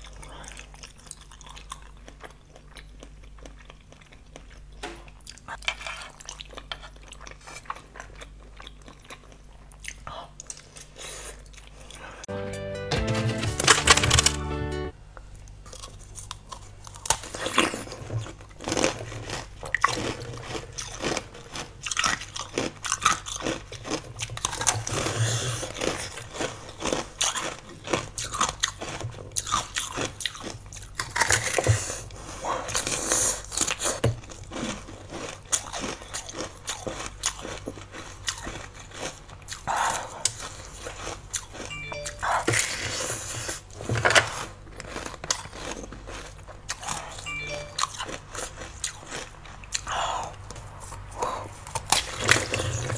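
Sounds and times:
chewing: 0.0s - 12.3s, 15.5s - 52.9s
crunching frozen jelly: 13.4s - 14.5s, 15.6s - 52.9s.

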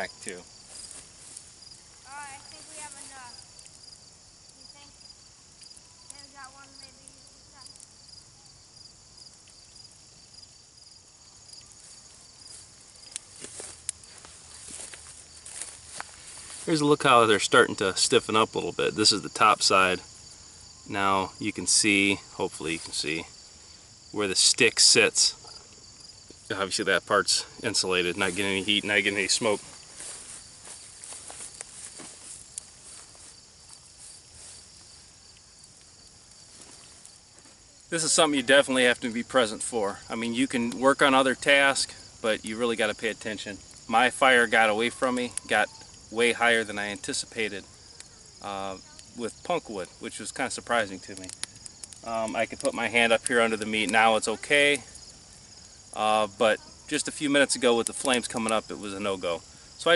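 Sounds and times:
insects chirping: 0.0s - 59.9s.

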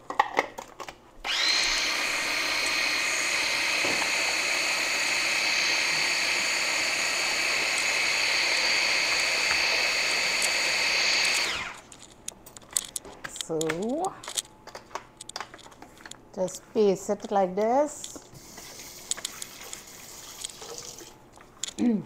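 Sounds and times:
electric grinder motor whining: 1.2s - 11.8s.

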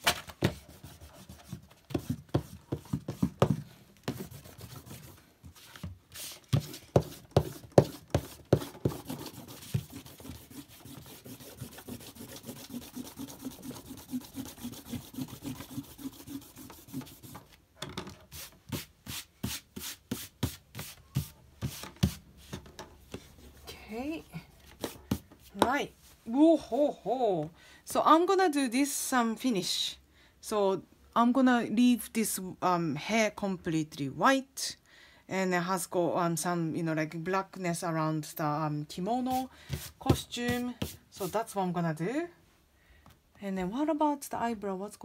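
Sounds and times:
eraser rubbing on paper: 0.5s - 3.3s, 4.1s - 17.5s, 18.3s - 22.2s, 39.2s - 41.4s.

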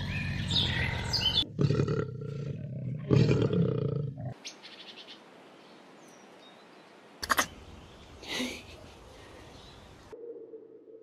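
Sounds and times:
large animal roaring: 0.0s - 4.4s.

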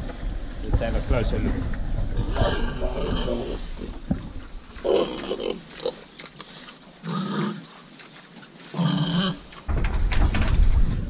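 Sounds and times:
pigs grunting and squealing: 2.0s - 7.9s, 8.6s - 9.6s.

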